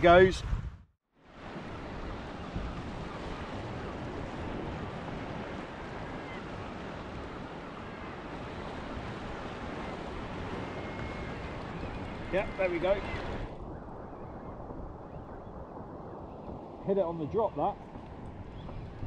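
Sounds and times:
open sea wash: 0.0s - 19.0s
wind noise on microphone: 0.0s - 19.0s.

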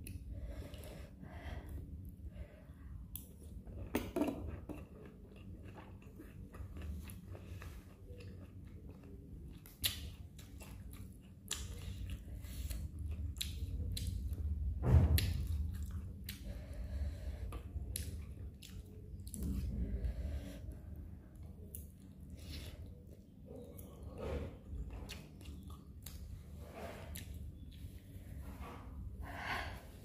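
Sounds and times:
wet chewing: 4.8s - 14.5s, 17.5s - 19.7s
low rumble: 12.1s - 21.6s.

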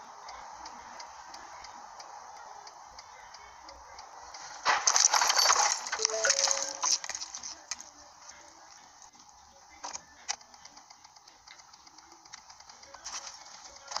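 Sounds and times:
faint regular ticking: 0.0s - 4.8s, 7.0s - 14.0s
traffic noise: 0.0s - 14.0s
car crash impact: 4.4s - 7.7s
debris and glass clinking: 4.4s - 7.8s.

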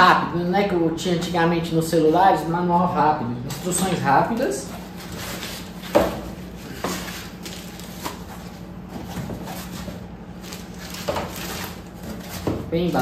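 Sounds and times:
steady low hum: 0.0s - 13.0s
cardboard and plastic rustling: 4.3s - 13.0s.

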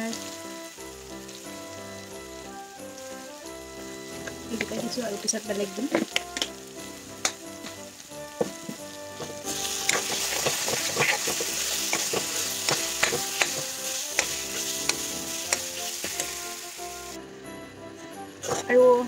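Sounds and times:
masala sizzling in oil: 0.0s - 17.2s
steel ladle scraping a pan: 9.1s - 17.2s, 18.4s - 18.8s.

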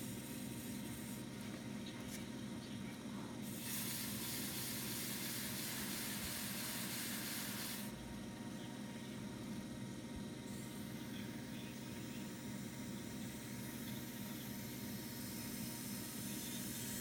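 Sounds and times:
blade shaving porcelain hiss: 0.0s - 1.3s, 3.4s - 8.0s, 10.4s - 17.0s
potter's wheel humming: 0.0s - 17.0s.

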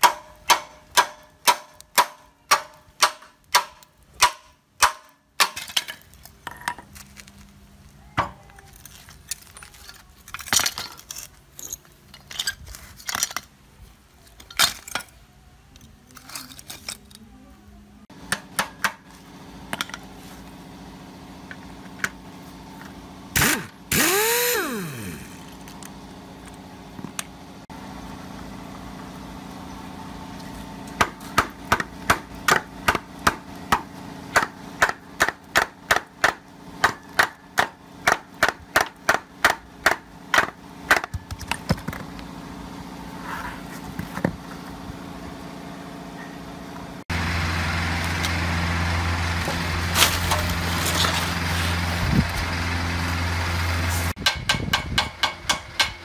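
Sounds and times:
sharp metal knocks: 0.0s - 5.9s, 54.2s - 56.0s.

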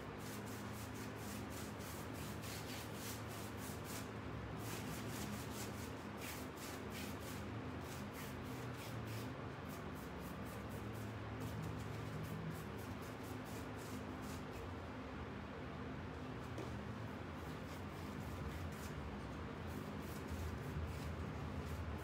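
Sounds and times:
paintbrush scrubbing on wood: 0.2s - 14.5s.

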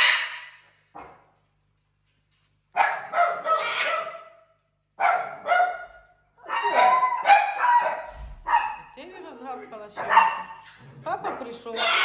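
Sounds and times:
puppy barking: 0.0s - 1.3s, 2.8s - 9.0s, 10.0s - 12.0s.

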